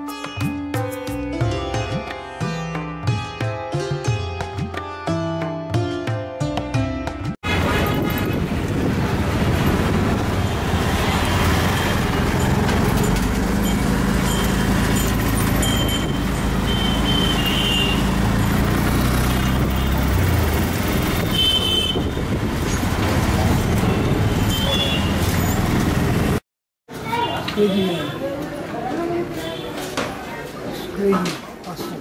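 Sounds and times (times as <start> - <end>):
traffic engine and road noise: 7.4 - 32.0
car horn toots: 7.5 - 8.6, 15.6 - 18.3, 21.2 - 22.2, 23.7 - 25.3.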